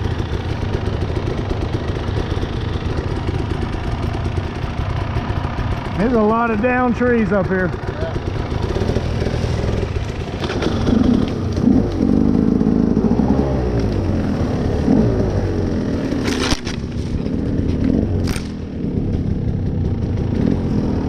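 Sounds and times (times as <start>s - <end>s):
dirt bike engine revving: 0.0s - 21.0s
short sharp crackles: 17.8s - 18.6s.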